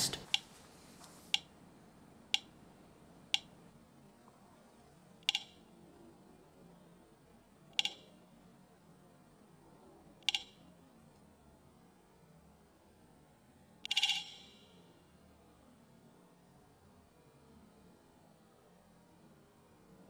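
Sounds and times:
double test clicks: 5.2s - 5.7s, 7.8s - 8.1s, 10.2s - 10.6s, 13.9s - 14.8s.

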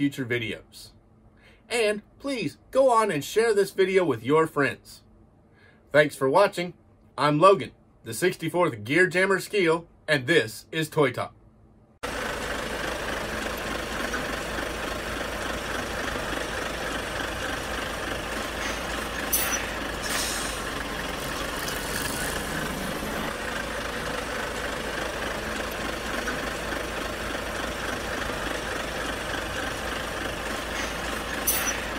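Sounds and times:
large engine idling: 12.0s - 31.9s
short hisses: 18.5s - 20.8s, 30.7s - 31.9s.

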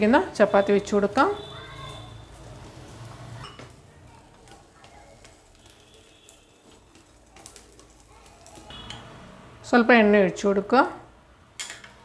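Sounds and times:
egg frying in a pan: 0.0s - 9.6s.

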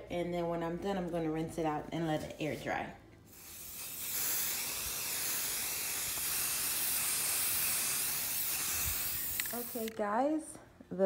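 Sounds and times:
spray can hissing: 3.3s - 10.0s.

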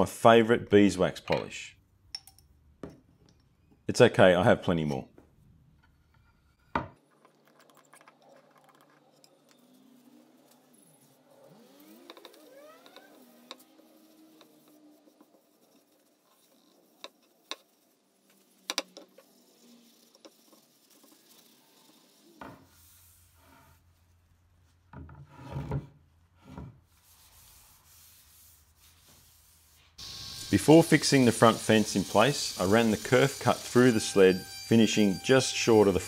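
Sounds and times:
paper towel wiping wood: 26.9s - 30.0s.

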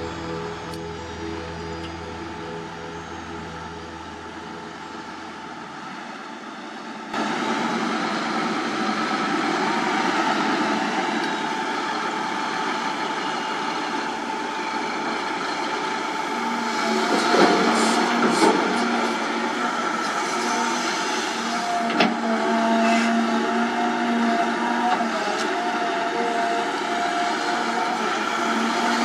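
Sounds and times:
background music: 0.0s - 6.1s
excavator diesel engine running: 0.0s - 29.0s.

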